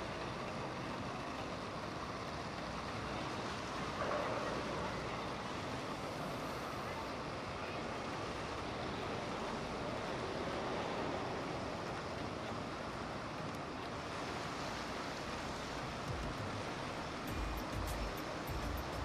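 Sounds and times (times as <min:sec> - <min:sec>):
boat wake water rushing: 0:00.0 - 0:19.0.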